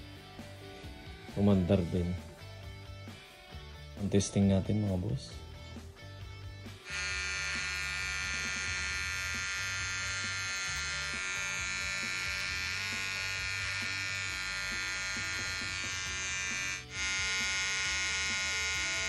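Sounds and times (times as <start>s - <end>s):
hair trimmer buzzing: 6.7s - 19.0s.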